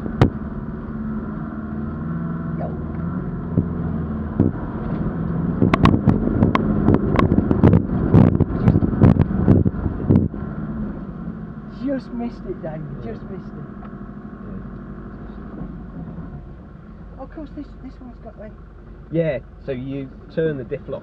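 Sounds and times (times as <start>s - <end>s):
vehicle engine running: 0.0s - 21.0s.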